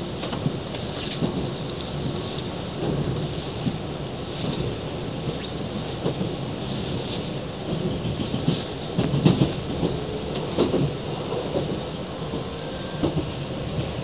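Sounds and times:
train clanks and knocks: 0.0s - 14.0s
train rumble: 0.0s - 14.0s.

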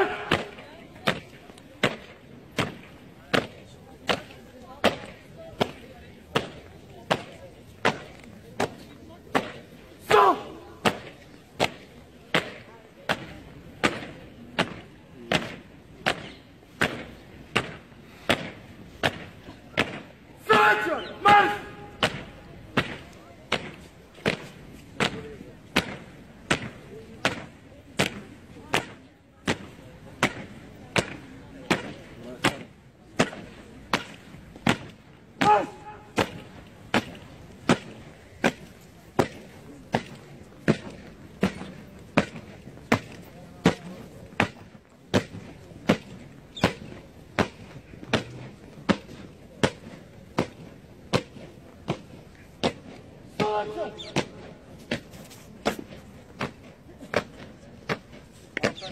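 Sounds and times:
short shout: 20.4s - 21.9s.

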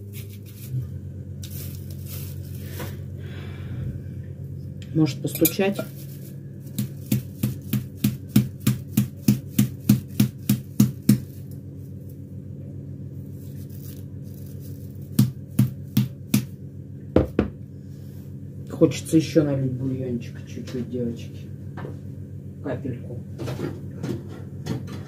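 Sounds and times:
knocks on a packed bag: 17.2s - 17.6s.

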